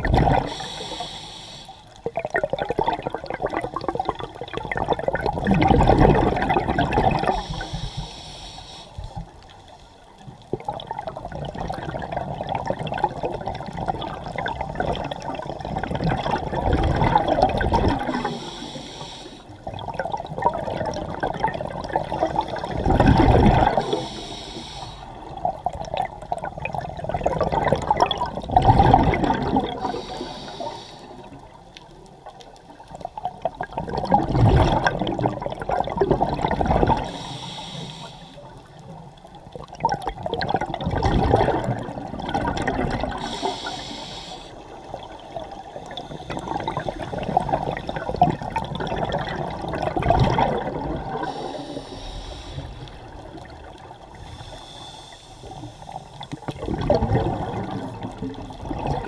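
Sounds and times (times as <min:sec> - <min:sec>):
exhaled bubbles gurgling: 0:00.0 - 0:09.5, 0:10.1 - 0:59.0
regulator hiss: 0:00.5 - 0:01.9, 0:07.3 - 0:09.2, 0:18.2 - 0:19.5, 0:23.8 - 0:25.3, 0:29.8 - 0:31.3, 0:37.0 - 0:38.5, 0:43.2 - 0:44.9, 0:51.2 - 0:53.0, 0:54.2 - 0:56.5.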